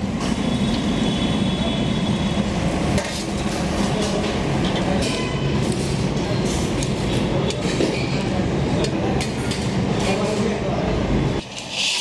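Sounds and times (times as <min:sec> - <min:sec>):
kitchen noise rush: 0:02.0 - 0:12.0.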